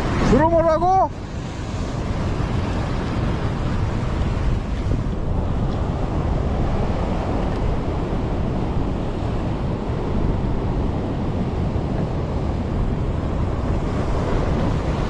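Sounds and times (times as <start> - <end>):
ocean surf breaking on rocks: 0.0 - 15.0
wind buffeting microphone: 0.0 - 15.0.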